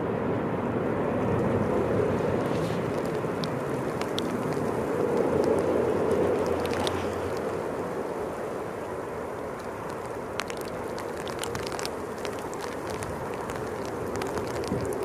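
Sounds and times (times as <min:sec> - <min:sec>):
distant jet engines rumbling: 0:00.0 - 0:15.0
storm wind and rain: 0:00.0 - 0:15.0
raindrops ticking on microphone: 0:01.2 - 0:15.0.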